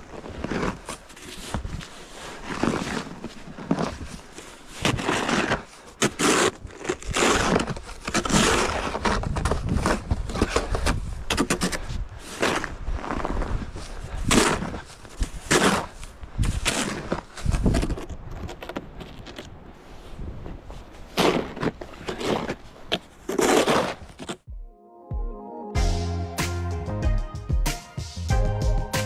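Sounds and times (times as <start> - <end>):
footsteps crunching through snow: 0.0 - 10.8.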